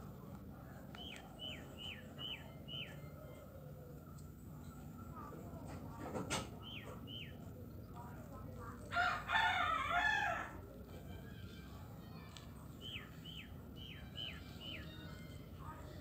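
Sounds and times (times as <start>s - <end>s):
small bird chirping: 0.9s - 5.4s, 6.5s - 8.0s, 11.6s - 15.3s
rooster crowing: 8.9s - 10.6s.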